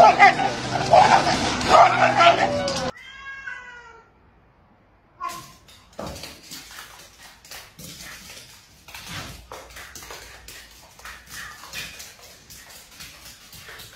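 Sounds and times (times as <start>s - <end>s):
dog and cat scuffling: 5.2s - 13.9s.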